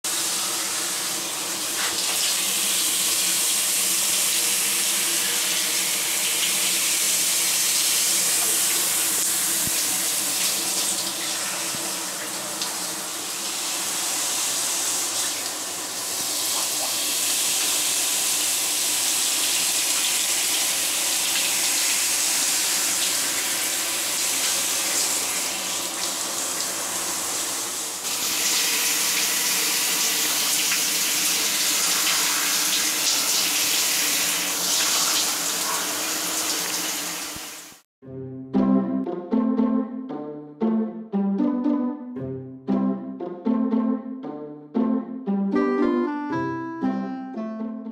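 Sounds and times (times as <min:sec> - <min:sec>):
shower spray splashing: 0:00.1 - 0:37.8.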